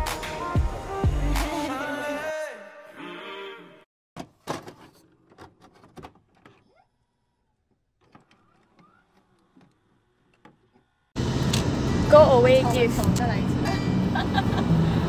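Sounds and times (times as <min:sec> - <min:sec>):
background music: 0:00.0 - 0:03.8.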